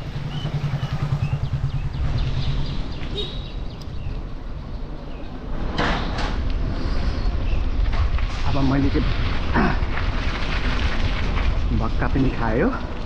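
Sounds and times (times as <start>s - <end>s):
tyres rolling on paved road: 0.0s - 13.0s
wind buffeting microphone: 0.0s - 13.0s
bird chirps: 0.2s - 5.3s.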